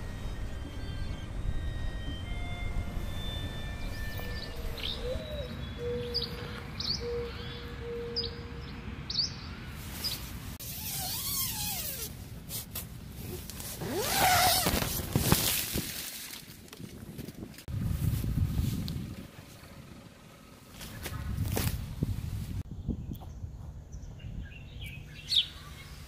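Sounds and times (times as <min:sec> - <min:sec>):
low outdoor rumble: 0:00.0 - 0:10.7, 0:12.0 - 0:26.0
small birds chirping: 0:03.8 - 0:11.4, 0:22.8 - 0:26.0
tent fabric rustling: 0:09.8 - 0:16.6
zipper opening: 0:10.6 - 0:12.2, 0:13.2 - 0:15.4.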